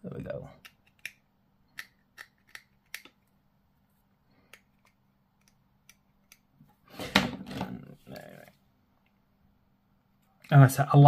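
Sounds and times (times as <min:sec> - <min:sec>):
plastic parts clicking: 0:00.6 - 0:03.3.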